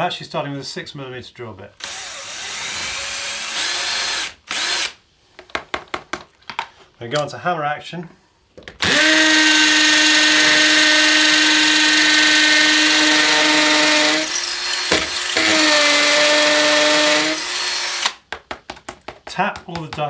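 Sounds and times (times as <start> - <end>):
hammer drill drilling into brick: 1.8 - 5.0, 8.8 - 18.2.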